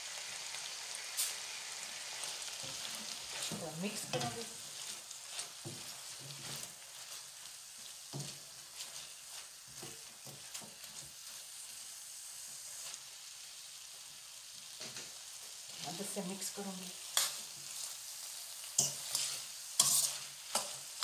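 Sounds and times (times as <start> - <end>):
food sizzling in a wok: 0.0 - 21.0
spatula scraping a pan: 2.1 - 11.5, 17.0 - 18.0, 18.6 - 21.0.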